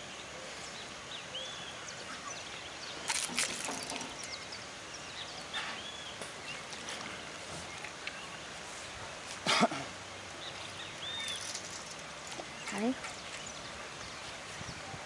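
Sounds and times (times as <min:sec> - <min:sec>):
bird chirps: 0:10.4 - 0:14.8.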